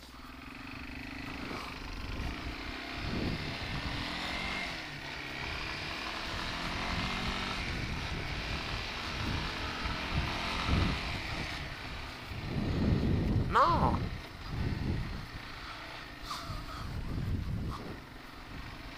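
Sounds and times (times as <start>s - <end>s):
atv engine accelerating: 0.0s - 18.9s
wind on microphone: 2.0s - 4.6s, 6.3s - 15.4s, 16.2s - 18.7s.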